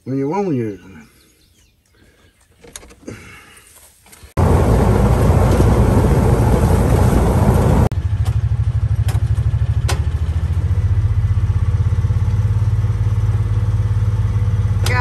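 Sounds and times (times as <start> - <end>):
vehicle rumbling on gravel road: 4.2 - 15.0
tractor engine idling: 4.4 - 15.0.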